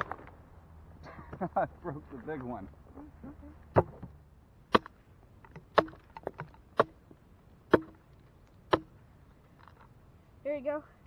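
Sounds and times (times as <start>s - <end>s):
hatchet chopping into log: 4.7s - 5.0s, 5.6s - 7.0s, 7.7s - 8.0s, 8.7s - 8.9s.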